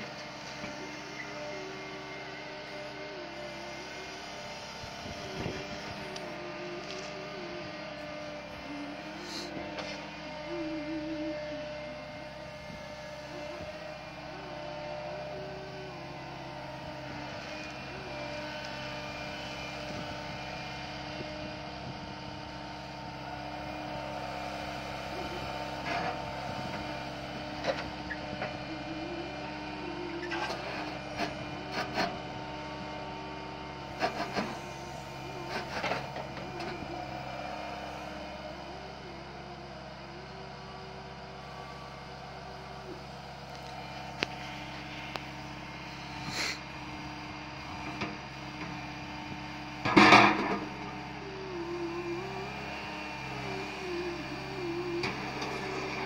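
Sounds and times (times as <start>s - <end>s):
excavator engine running: 0.0s - 56.0s.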